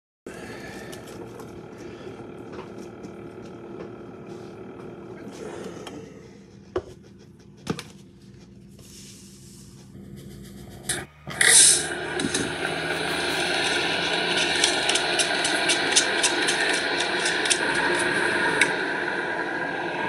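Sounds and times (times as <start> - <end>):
faint room hum: 0.3 - 20.0
low indistinct voice: 5.1 - 6.4, 10.0 - 15.0.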